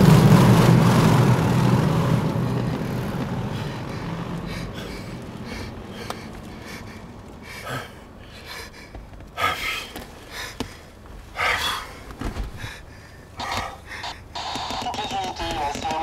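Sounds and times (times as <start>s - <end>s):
low rumble: 0.0s - 9.4s
man breathing hard and gasping: 3.5s - 14.3s.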